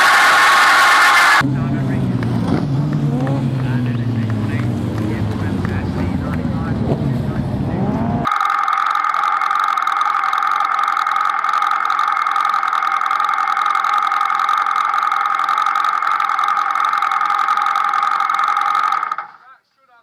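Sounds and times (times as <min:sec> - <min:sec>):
race car engine running at low revs: 0:00.0 - 0:08.3.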